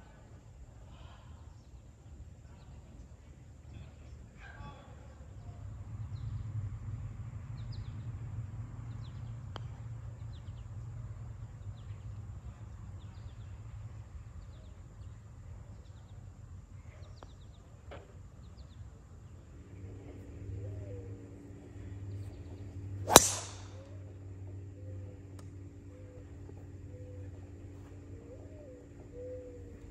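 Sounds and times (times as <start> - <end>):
low outdoor rumble: 5.2 - 29.9
golf club striking ball: 23.1 - 23.8.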